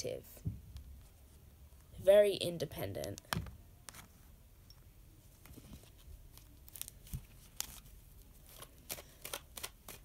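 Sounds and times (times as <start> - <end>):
cards being handled: 5.4 - 10.0.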